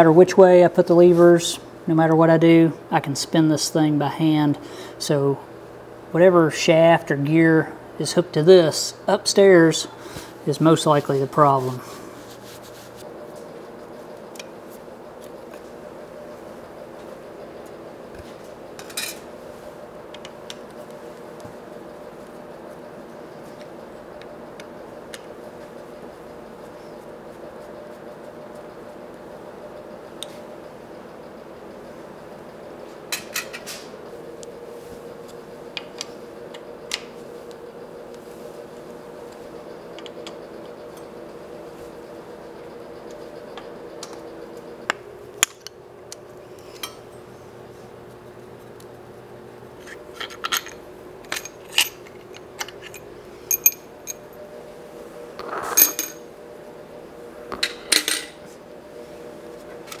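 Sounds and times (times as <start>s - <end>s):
steady hum: 0.0s - 60.0s
metal tools clinking: 49.9s - 54.2s, 55.6s - 56.2s.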